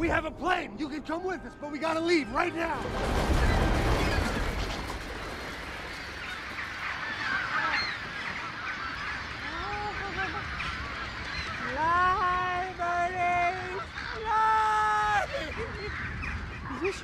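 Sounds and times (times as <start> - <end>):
flock of birds calling: 1.0 - 17.0
deep low rumble: 2.5 - 6.4.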